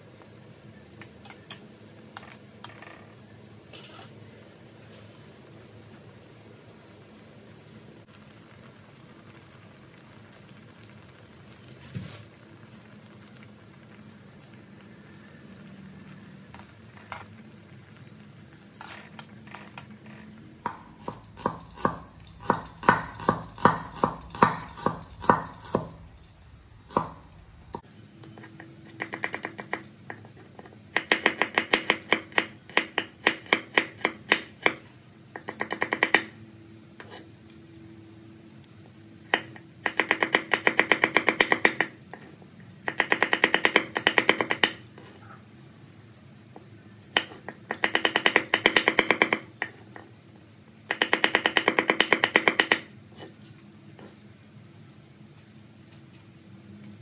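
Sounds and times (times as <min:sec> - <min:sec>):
knife chopping on wooden board: 0:20.7 - 0:26.0, 0:26.9 - 0:27.8.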